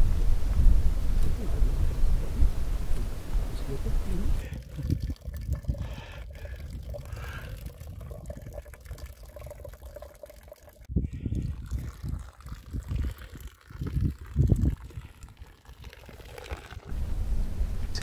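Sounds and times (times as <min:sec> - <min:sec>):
tea pouring and splashing: 0:04.4 - 0:16.9.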